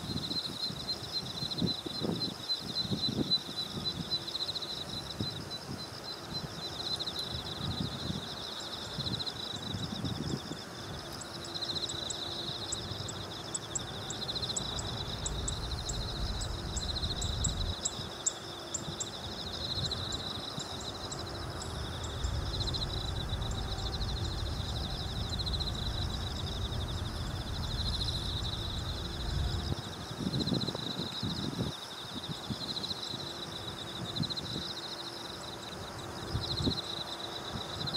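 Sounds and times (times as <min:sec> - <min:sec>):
insects chirring in fast trill: 0:00.0 - 0:37.9
low rumble: 0:14.4 - 0:18.0, 0:21.0 - 0:30.0.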